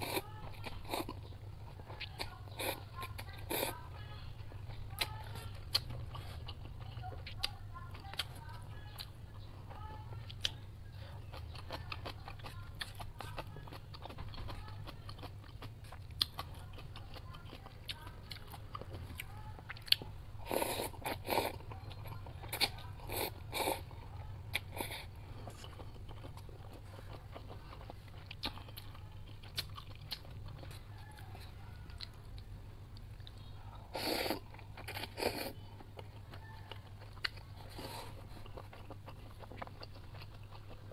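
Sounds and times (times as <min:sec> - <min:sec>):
steady low hum: 0:00.0 - 0:40.9
wet chewing: 0:00.0 - 0:40.9
noodles slurped: 0:33.9 - 0:35.6.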